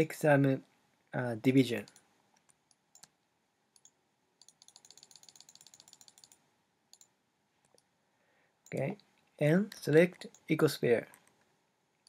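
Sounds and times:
faint computer mouse clicks: 1.9s - 7.9s.

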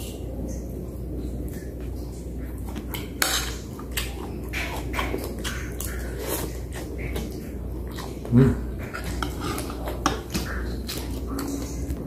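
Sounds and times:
steady low hum: 0.0s - 12.0s
fork clinking and scraping on plate: 2.9s - 8.2s.

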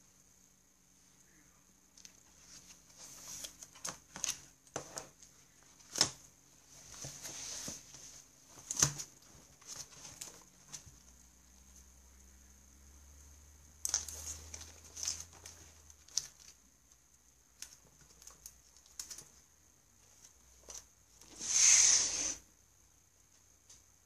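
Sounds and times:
book pages rustling: 2.1s - 11.1s, 13.8s - 16.7s
books moved on desk: 5.8s - 11.0s.

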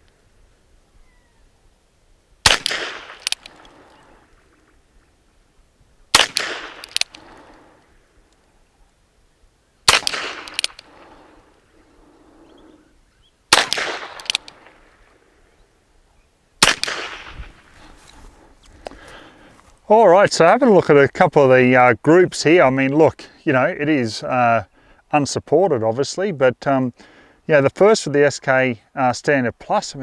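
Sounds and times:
fainter sharp echo: 9.9s - 12.9s.

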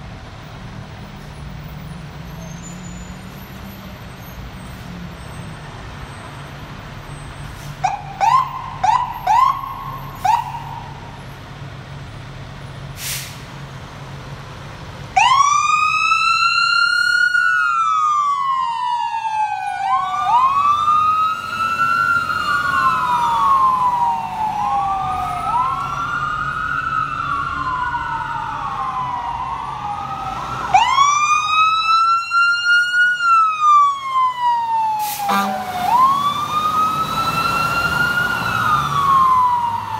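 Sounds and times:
diesel engines rumbling: 0.0s - 39.9s
siren chirps: 7.8s - 11.2s, 15.2s - 39.9s.

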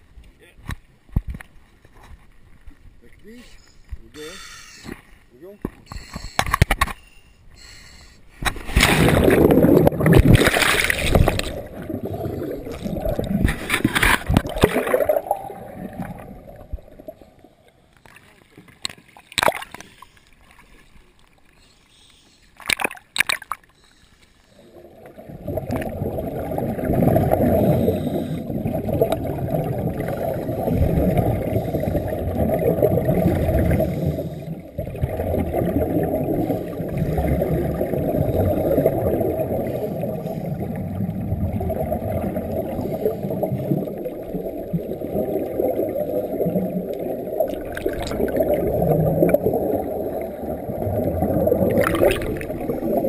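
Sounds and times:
muffled underwater rushing: 8.4s - 17.6s, 24.5s - 53.0s
splashes at water surface: 8.6s - 11.7s.

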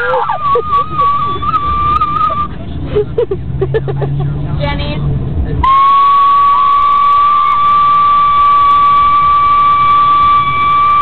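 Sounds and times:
person whistling high note: 0.0s - 2.6s, 5.7s - 11.0s
faint wavering whistle note: 5.6s - 11.0s.

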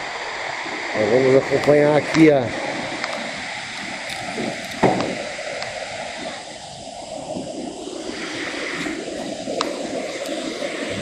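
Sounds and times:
waterfall rushing: 0.0s - 11.0s
sharp knock: 4.8s - 5.2s.

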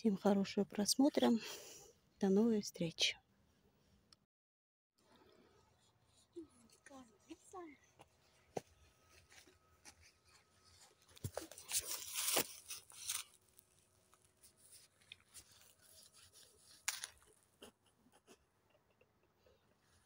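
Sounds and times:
footsteps on dry leaves: 8.2s - 17.3s.

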